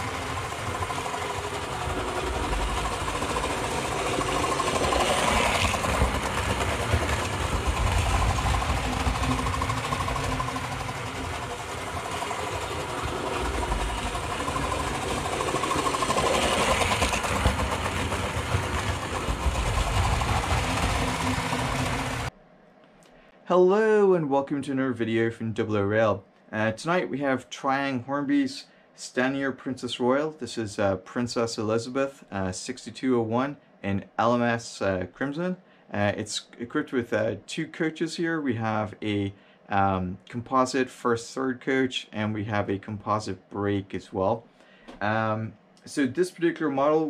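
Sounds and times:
model trains rattling on metal track: 0:00.0 - 0:22.3
faint motor whine: 0:00.0 - 0:27.5.

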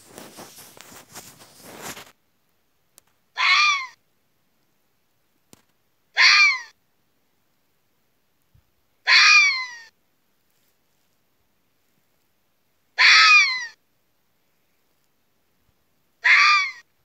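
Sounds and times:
rustling: 0:00.0 - 0:02.2, 0:10.3 - 0:12.3
fox calling: 0:03.3 - 0:04.0, 0:06.1 - 0:06.8, 0:09.0 - 0:09.9, 0:13.0 - 0:13.8, 0:16.2 - 0:16.9.

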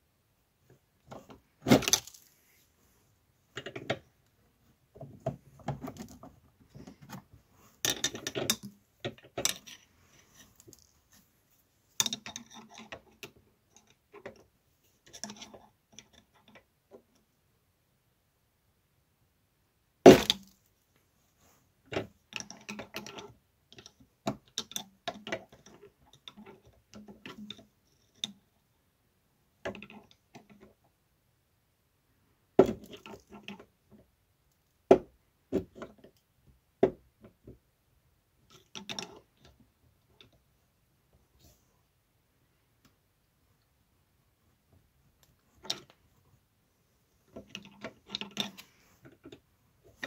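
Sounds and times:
small metal ticks and scrapes: 0:07.8 - 0:11.2, 0:11.9 - 0:17.2, 0:21.9 - 0:28.5, 0:32.8 - 0:34.0, 0:38.4 - 0:40.4, 0:47.2 - 0:50.0.

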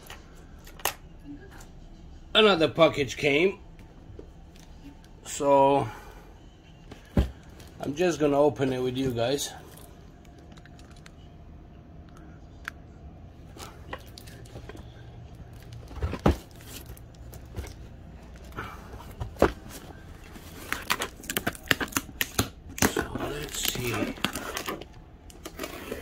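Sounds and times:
faint low hum: 0:00.0 - 0:26.0
packaging tearing and rustling: 0:19.6 - 0:26.0.

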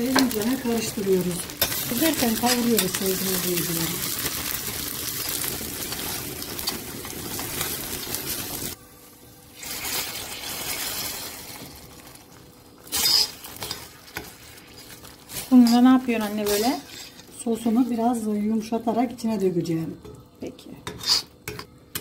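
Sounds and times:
paste sizzling in hot oil: 0:00.0 - 0:08.8, 0:09.4 - 0:18.2
metal spoon scraping pan: 0:12.9 - 0:17.3, 0:20.8 - 0:22.0.

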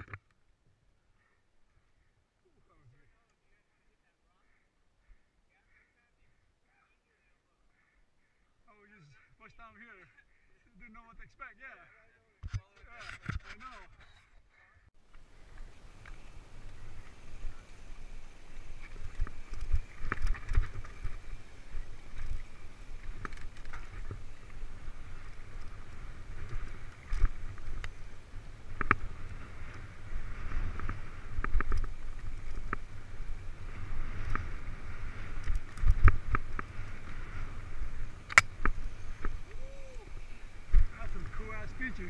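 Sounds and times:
wind rumble on microphone: 0:15.4 - 0:42.0
bike rattling and knocking: 0:18.8 - 0:24.3.

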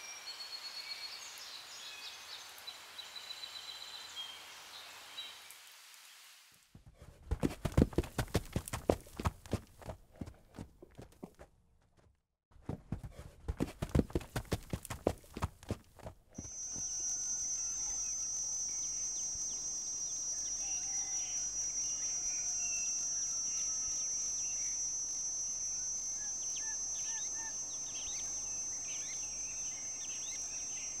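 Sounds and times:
crickets trilling: 0:16.4 - 0:31.0.

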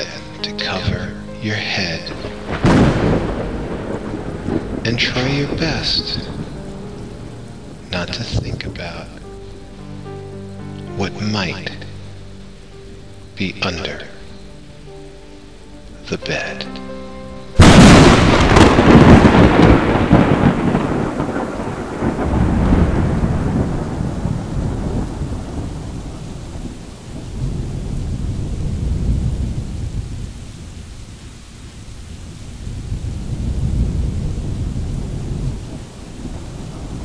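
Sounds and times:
low rolling thunder: 0:00.0 - 0:10.3, 0:17.5 - 0:37.0
rain hissing: 0:00.0 - 0:37.0
thunderclap: 0:01.9 - 0:09.2, 0:17.6 - 0:30.7, 0:32.3 - 0:37.0.

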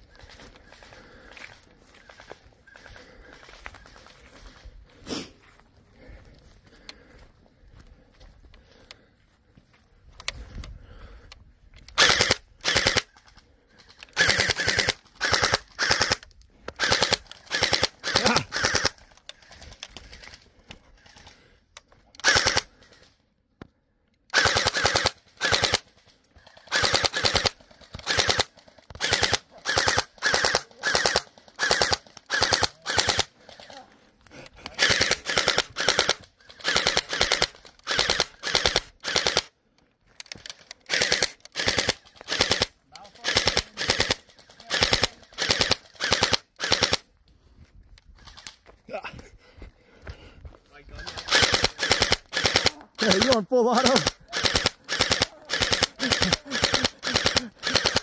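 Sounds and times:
gel blaster rapid shots: 0:12.0 - 0:13.1, 0:14.2 - 0:16.2, 0:16.8 - 0:19.0, 0:22.2 - 0:22.7, 0:24.3 - 0:25.8, 0:26.6 - 0:33.3, 0:34.7 - 0:39.5, 0:40.9 - 0:47.0, 0:51.0 - 0:58.0.

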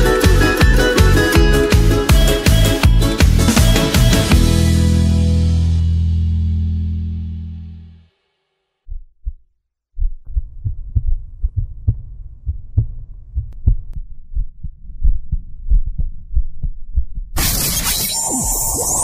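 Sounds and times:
heartbeat thumps: 0:08.9 - 0:17.4.

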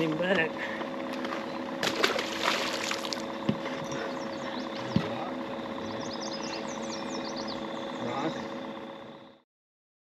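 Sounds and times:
birds chirping: 0:00.0 - 0:09.4
steady hum: 0:00.0 - 0:09.4
fish splashing into water: 0:01.2 - 0:03.3
knocks on boat: 0:03.4 - 0:03.8, 0:04.9 - 0:05.2.

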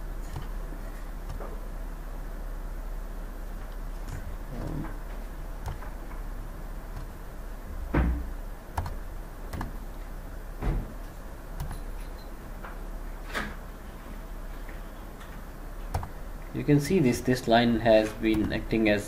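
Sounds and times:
steady low hum: 0:00.0 - 0:19.0
computer mouse clicks: 0:01.2 - 0:01.4, 0:05.6 - 0:06.0, 0:08.7 - 0:09.8, 0:15.9 - 0:16.2.

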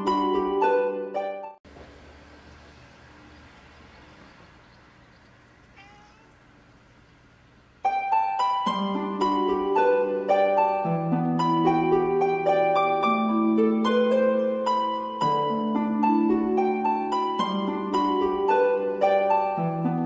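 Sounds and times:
plucked harp-like music: 0:00.0 - 0:01.6, 0:07.8 - 0:20.0
faint short call: 0:05.6 - 0:07.2.

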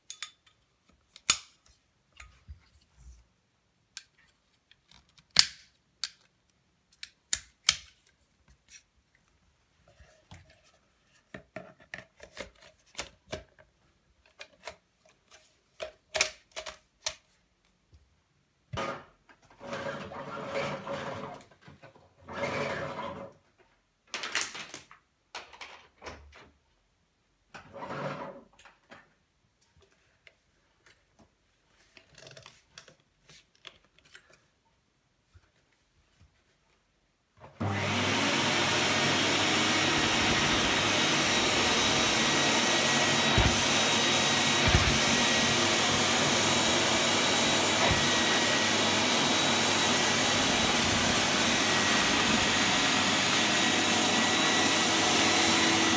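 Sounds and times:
hose scraping and rustling: 0:37.9 - 0:53.5.

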